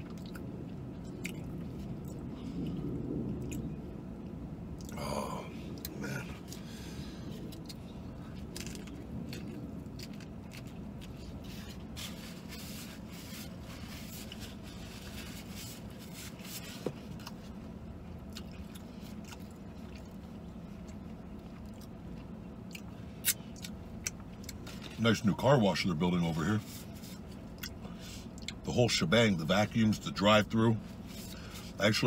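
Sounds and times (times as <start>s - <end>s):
biting and chewing crunchy food: 0.0s - 3.8s, 5.7s - 25.8s, 26.4s - 28.6s
steady low hum: 0.0s - 32.0s.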